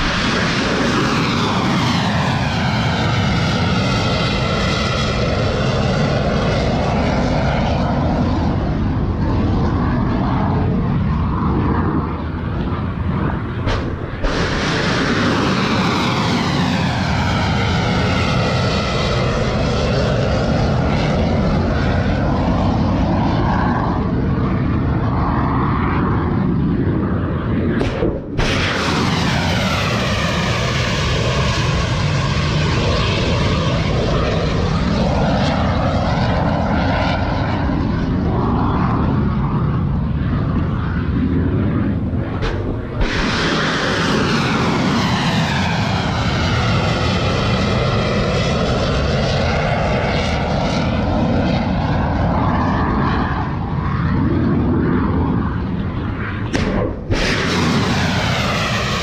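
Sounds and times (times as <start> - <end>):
rocket motor roaring: 0.0 - 48.8, 49.4 - 59.0.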